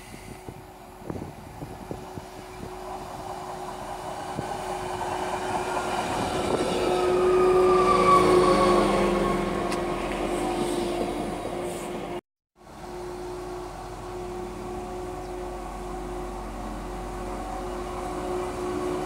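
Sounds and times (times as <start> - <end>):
diesel train passing: 0.0 - 19.0
train whine falling in pitch: 2.4 - 11.6.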